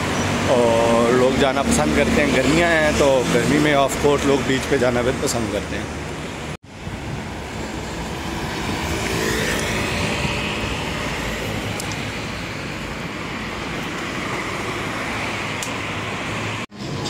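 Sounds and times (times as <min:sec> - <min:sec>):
vehicle passing: 0:07.2 - 0:17.0.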